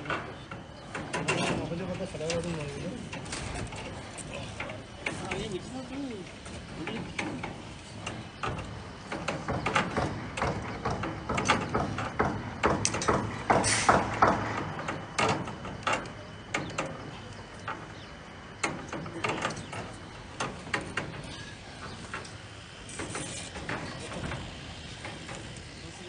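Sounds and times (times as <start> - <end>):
scraping rustle: 19.0 - 26.0.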